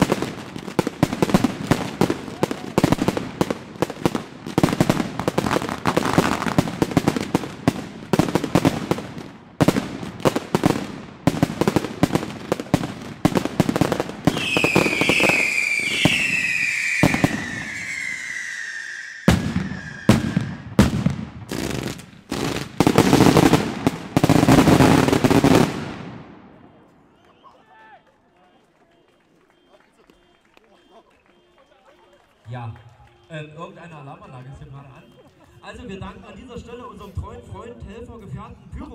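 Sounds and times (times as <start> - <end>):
fireworks bangs and crackling: 0.0 - 26.9
fireworks whistles sliding down: 14.3 - 20.8.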